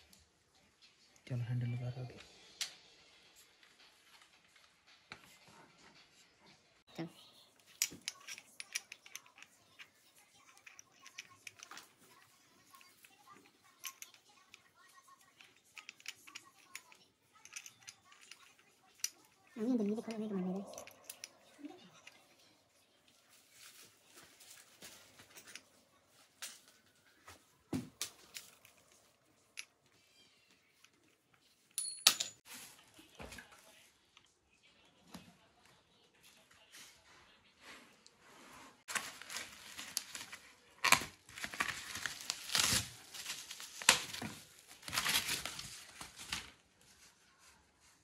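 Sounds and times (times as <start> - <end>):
hands clicking and tapping parts: 7.7 - 9.9, 15.3 - 19.2
sharp metallic clink: 31.8 - 32.4.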